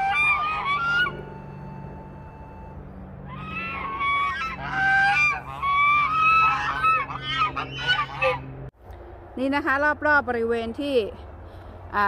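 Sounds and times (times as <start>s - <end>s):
geese honking: 0.0s - 8.6s.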